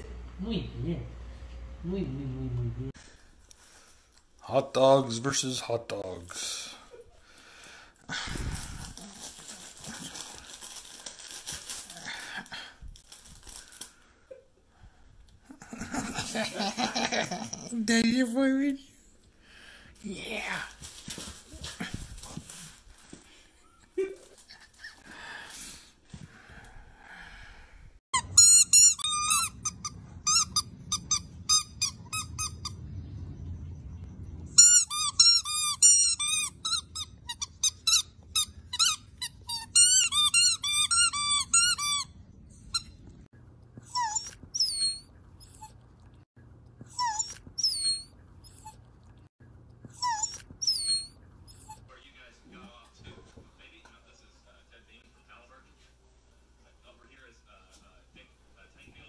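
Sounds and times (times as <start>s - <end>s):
squeaky toy squeaking: 28.2s - 32.8s, 34.6s - 43.0s, 43.9s - 45.8s, 46.9s - 48.8s, 50.0s - 51.9s.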